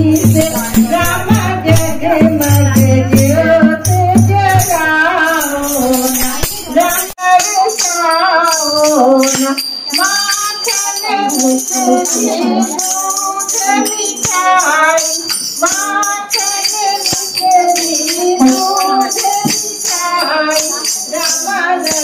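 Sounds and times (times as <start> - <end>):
low drum beat: 0.0 - 7.1
jingling tambourine: 0.0 - 22.0
women singing devotional song: 0.0 - 22.0.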